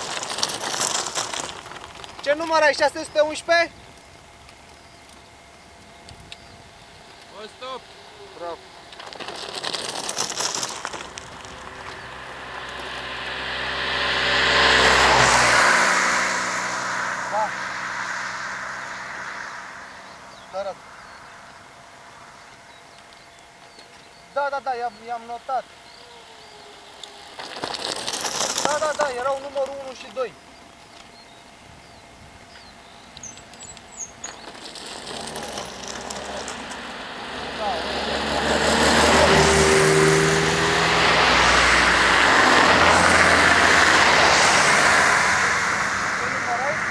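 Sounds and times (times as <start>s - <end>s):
bike crunching on gravel: 0.0s - 2.6s, 8.9s - 12.7s, 27.1s - 30.1s, 33.2s - 36.9s
car engine and tyre noise: 0.0s - 24.0s, 25.8s - 46.9s
birds chirping: 10.1s - 39.7s.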